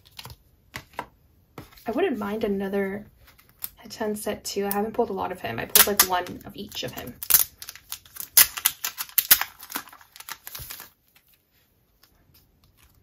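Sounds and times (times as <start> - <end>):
card pack wrapper tearing: 5.7 - 11.0.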